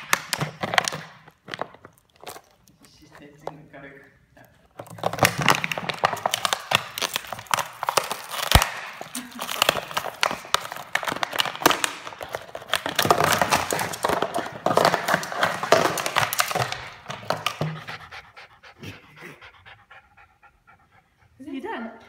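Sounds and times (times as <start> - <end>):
plastic bottle crackling: 0.0 - 18.0
dog panting quickly: 16.9 - 22.0.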